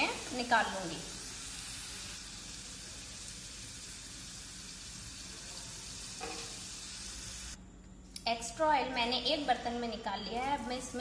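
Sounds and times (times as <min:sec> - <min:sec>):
hot oil sizzling in a pan: 0:00.0 - 0:07.6.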